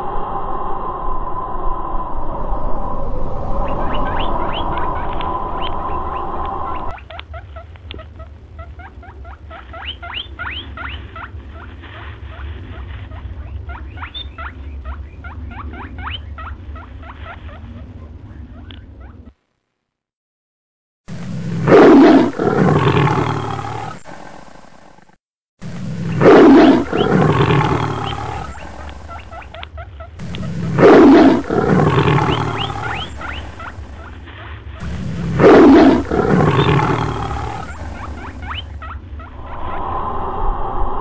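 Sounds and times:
tiger roaring: 21.6s - 24.4s, 25.9s - 29.1s, 30.2s - 33.6s, 34.8s - 38.0s.

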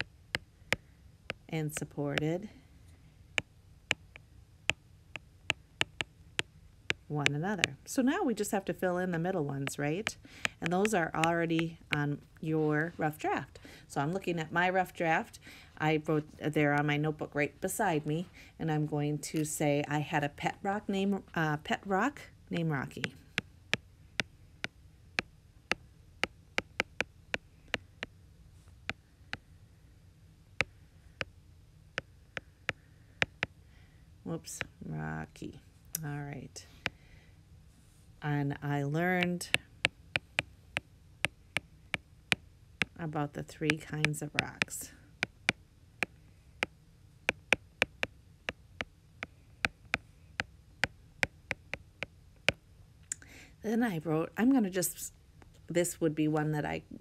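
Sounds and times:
stylus tapping on glass screen: 5.8s - 6.1s.

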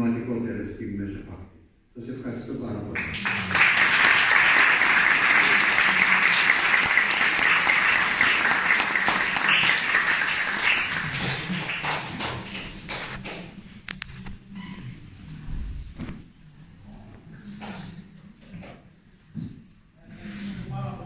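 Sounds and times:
audience applauding: 3.0s - 13.6s.

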